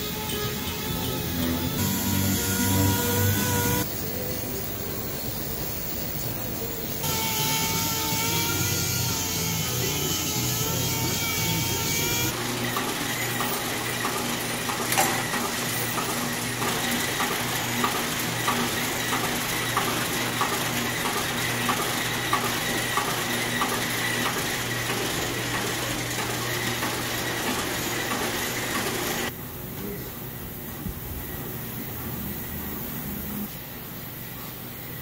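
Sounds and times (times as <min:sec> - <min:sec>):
air-powered orbital sander: 0:00.0 - 0:04.0, 0:06.6 - 0:12.4.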